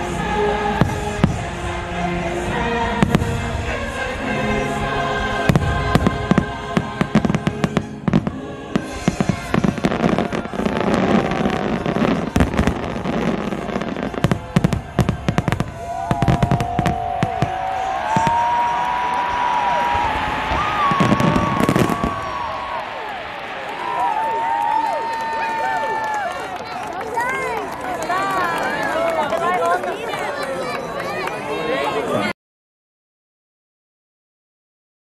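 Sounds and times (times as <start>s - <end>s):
orchestral and choral music: 0.0s - 16.9s, 19.7s - 24.4s
fireworks bangs: 0.7s - 1.6s, 3.0s - 3.9s, 5.4s - 25.8s
firework whistle: 7.1s - 25.8s.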